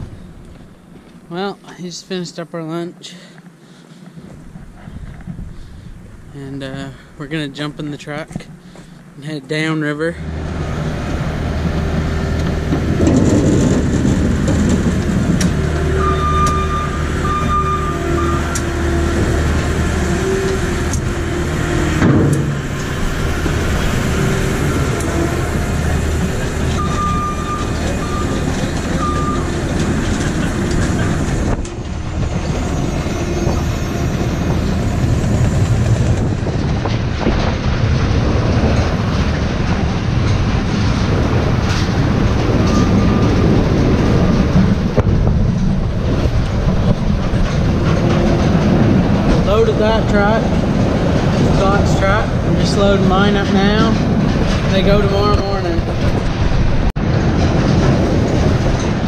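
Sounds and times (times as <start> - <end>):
low machine drone: 0.0 - 2.2, 4.2 - 59.0
rollers and chains rattling: 4.2 - 59.0
potatoes tumbling on rollers: 11.6 - 15.9.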